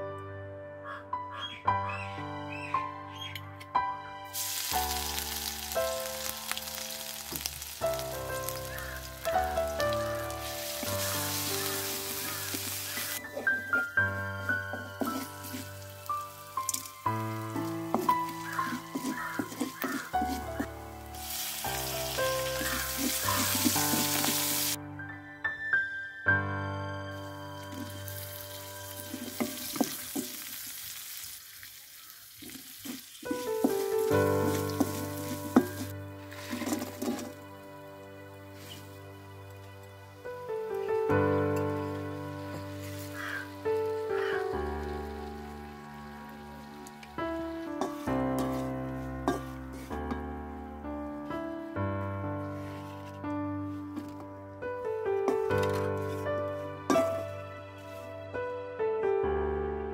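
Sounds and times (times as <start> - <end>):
soft background music: 0.0 - 30.2, 33.3 - 59.9
hot oil sizzling and crackling: 4.3 - 24.8, 27.1 - 50.3, 55.3 - 58.1
wooden spatula knocking pan: 17.5 - 20.7, 29.1 - 30.4, 32.9 - 35.9, 47.8 - 50.2.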